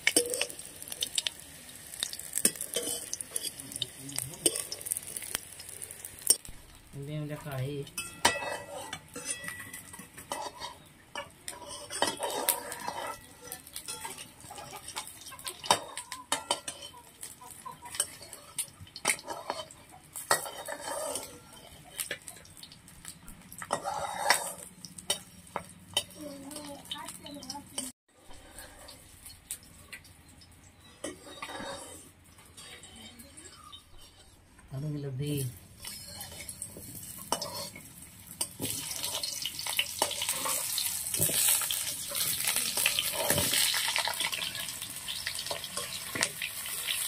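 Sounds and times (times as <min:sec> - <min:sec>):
eggs sizzling in a wok: 0:00.0 - 0:47.0
metal ladle scraping a bowl: 0:08.0 - 0:15.0, 0:20.3 - 0:22.1, 0:23.7 - 0:25.3, 0:28.2 - 0:29.0, 0:30.8 - 0:34.4, 0:35.8 - 0:37.8.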